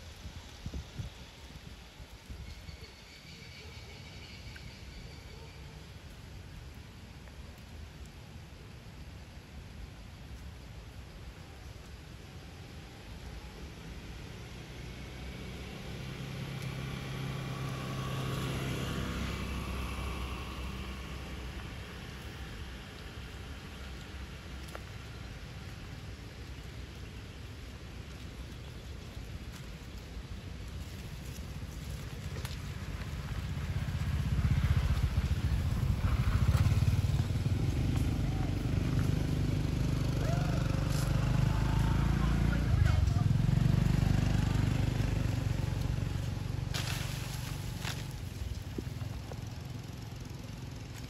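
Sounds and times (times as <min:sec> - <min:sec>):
vehicle engine passing by: 0:14.4 - 0:24.3, 0:31.3 - 0:51.0.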